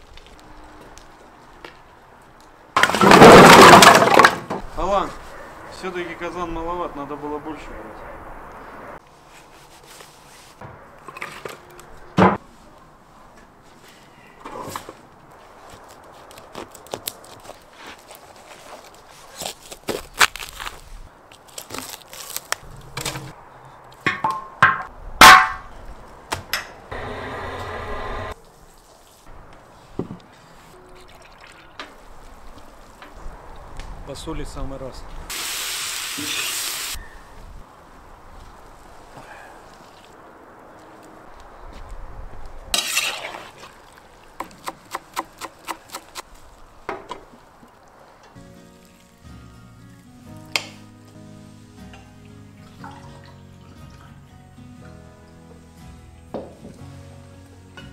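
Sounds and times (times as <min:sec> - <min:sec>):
steady hiss: 0:35.3 - 0:37.0
knife chopping meat and bone: 0:44.4 - 0:46.2.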